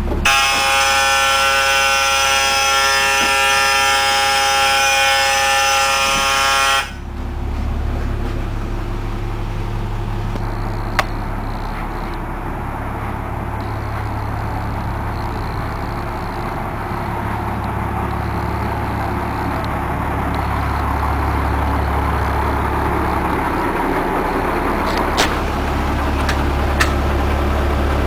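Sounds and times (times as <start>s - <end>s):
diesel engine idling: 0.0s - 28.0s
door alarm buzzing: 0.2s - 7.0s, 10.4s - 12.2s, 13.6s - 22.2s.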